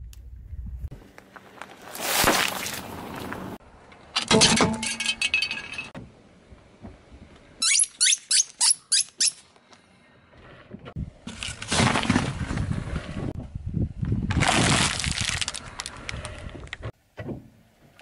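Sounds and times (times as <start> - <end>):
rubber duck squeaking: 7.6 - 9.4.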